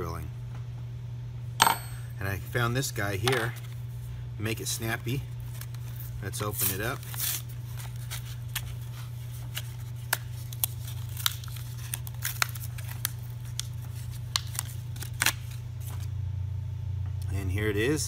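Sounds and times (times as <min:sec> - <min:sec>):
plastic packaging crackling: 0:05.4 - 0:16.1
paper card tearing: 0:06.3 - 0:16.1.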